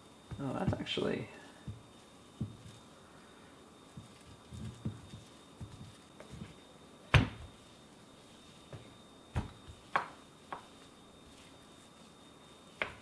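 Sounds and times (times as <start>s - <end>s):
rolling pin knocking on cutting board: 1.6s - 2.7s, 3.9s - 7.5s, 8.7s - 10.7s, 12.8s - 13.0s.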